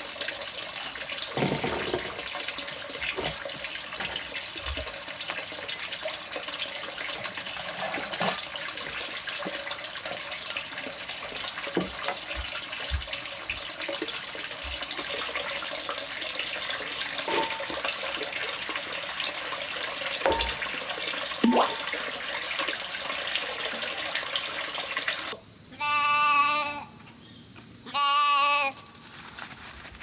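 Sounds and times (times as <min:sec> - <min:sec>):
stream water rushing: 0:16.5 - 0:25.4
animal bleating: 0:25.7 - 0:27.0, 0:27.8 - 0:28.9.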